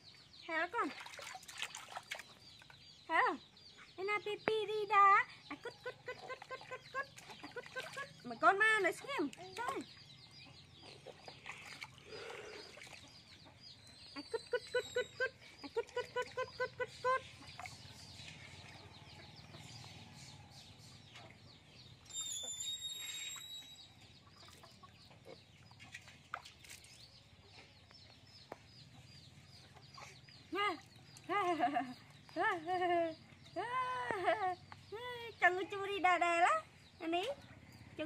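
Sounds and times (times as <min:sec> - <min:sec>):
high chirp: 0:22.0 - 0:24.1.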